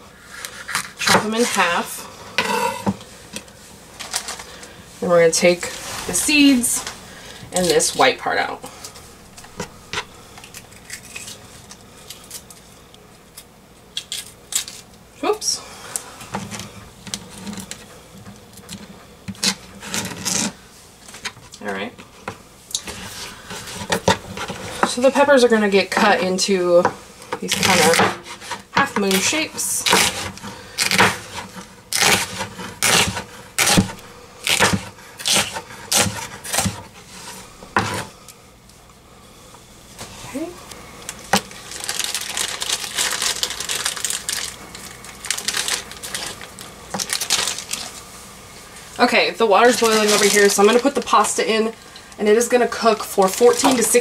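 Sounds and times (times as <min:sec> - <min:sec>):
knife chopping on plastic board: 0:32.0 - 0:36.8.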